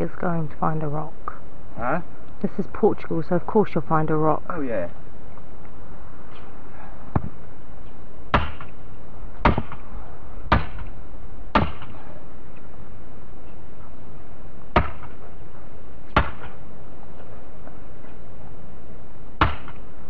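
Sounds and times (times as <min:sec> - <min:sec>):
hammer striking wooden post: 0:08.3 - 0:08.7, 0:09.4 - 0:09.8, 0:10.5 - 0:10.9, 0:11.5 - 0:12.0, 0:14.7 - 0:15.2, 0:16.1 - 0:16.6, 0:19.4 - 0:19.8.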